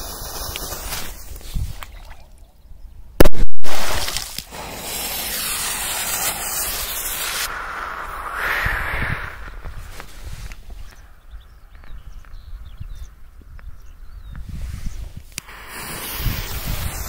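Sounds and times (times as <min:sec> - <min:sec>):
water spray splashing down: 0:15.4 - 0:17.0.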